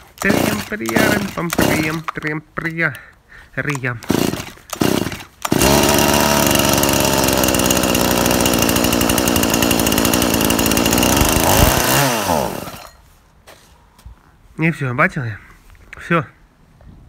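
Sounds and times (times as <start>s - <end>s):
chainsaw engine running and stalling: 0.0s - 2.1s, 3.7s - 13.0s.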